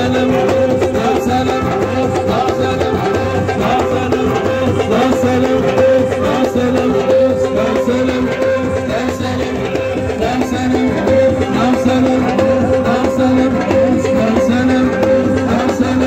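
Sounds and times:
rhythmic percussion beat: 0:00.0 - 0:16.0
voices singing: 0:00.0 - 0:16.0.

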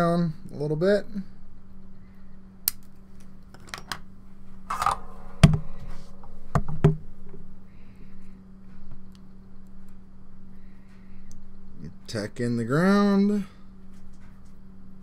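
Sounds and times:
steady low hum: 0:00.0 - 0:15.0
tools clattering: 0:04.7 - 0:06.8.

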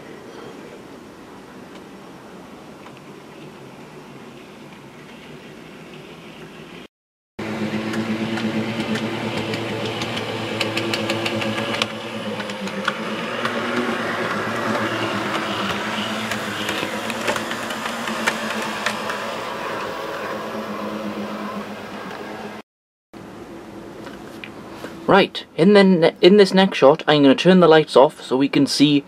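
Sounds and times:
model train motor humming: 0:07.4 - 0:22.6
wheels clicking over rail joints: 0:07.8 - 0:22.6.

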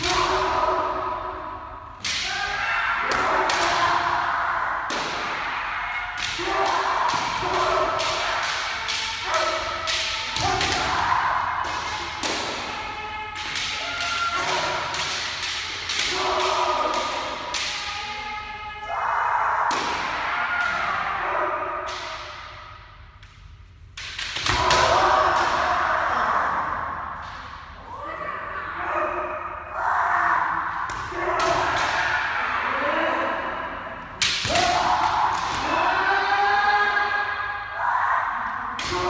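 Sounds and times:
people shouting cries: 0:00.0 - 0:22.8, 0:24.4 - 0:39.0
bamboo swords clacking: 0:04.9 - 0:18.3, 0:21.9 - 0:25.7, 0:34.2 - 0:36.0.

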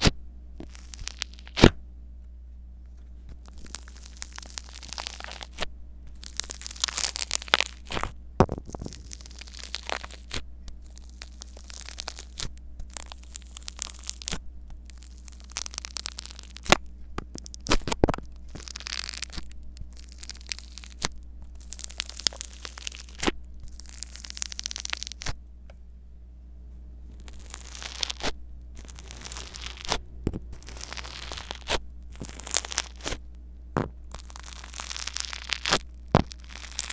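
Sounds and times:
steady low hum: 0:00.0 - 0:36.9
polystyrene beads crackling: 0:00.6 - 0:01.7, 0:03.3 - 0:25.4, 0:27.1 - 0:36.9.

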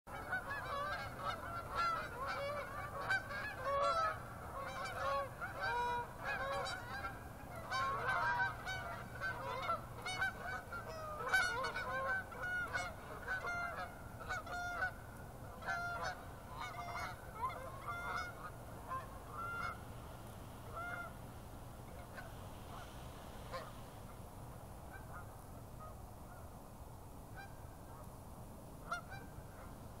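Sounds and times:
geese honking: 0:00.1 - 0:19.9, 0:20.6 - 0:21.2, 0:21.8 - 0:23.8, 0:28.8 - 0:29.7.

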